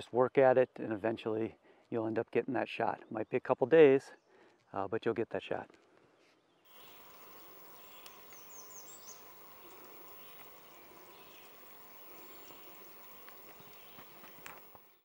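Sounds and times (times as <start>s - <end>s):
steady low hiss: 6.7s - 15.0s.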